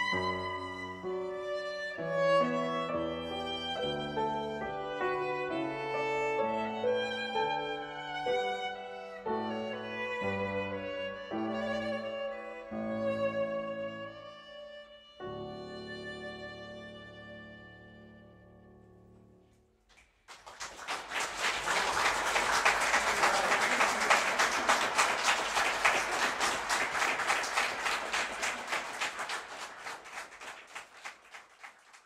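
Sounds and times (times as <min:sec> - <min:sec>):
violin and piano chord: 0:00.0 - 0:19.4
audience applauding: 0:19.9 - 0:32.0.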